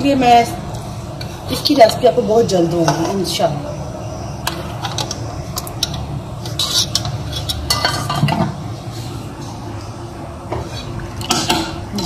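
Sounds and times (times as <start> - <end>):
metal spoon stirring in a pot: 4.4 - 9.2.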